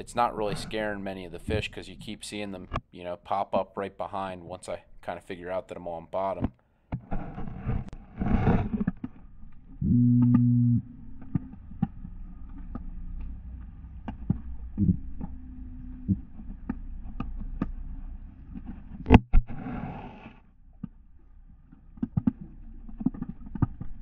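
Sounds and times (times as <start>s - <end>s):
low steady hum: 0.0s - 2.7s, 7.9s - 19.2s.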